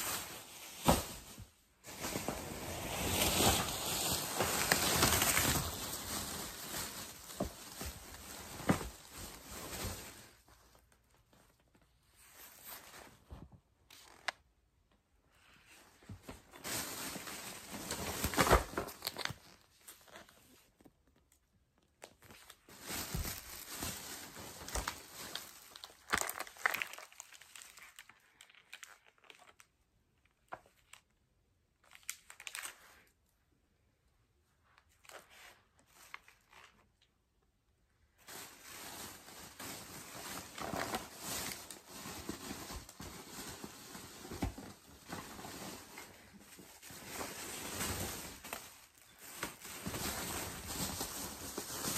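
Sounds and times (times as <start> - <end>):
plastic bags crinkling: 0.0 - 11.7, 16.1 - 21.2, 21.8 - 29.7, 38.1 - 51.9.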